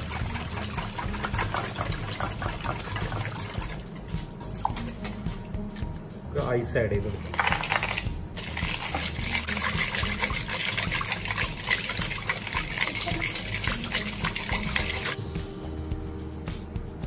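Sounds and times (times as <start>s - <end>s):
whisk beating drink with ice: 0.0s - 5.4s, 7.0s - 15.2s
ice cubes tipped into steel bowl: 7.2s - 8.9s.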